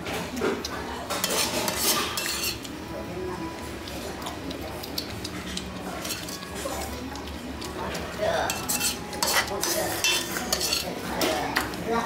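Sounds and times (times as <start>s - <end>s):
metal ladle scraping a pot: 1.2s - 2.7s, 6.0s - 6.7s, 8.5s - 11.0s.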